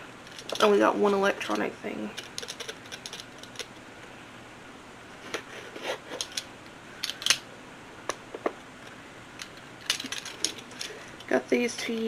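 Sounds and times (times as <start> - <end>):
packaging clicking and crinkling: 2.2 - 3.8, 9.4 - 11.3.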